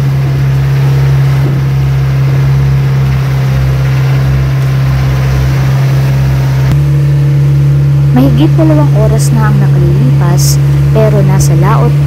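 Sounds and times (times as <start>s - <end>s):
boat engine drone: 0.0s - 12.0s
water rushing along hull: 0.0s - 12.0s.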